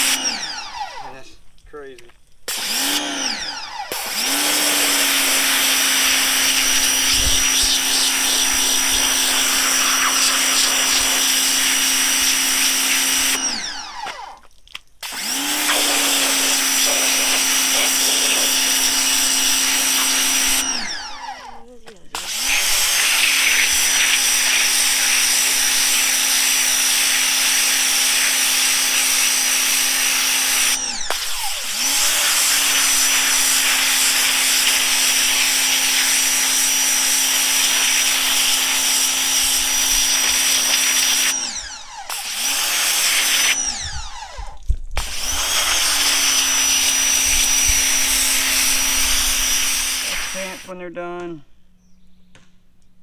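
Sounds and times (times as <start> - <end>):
pressure washer motor whine: 0.0 - 1.1, 2.5 - 14.4, 15.0 - 50.7
water jet spraying on fabric: 4.0 - 13.4, 15.2 - 20.6, 22.4 - 30.8, 31.8 - 41.3, 46.9 - 50.6.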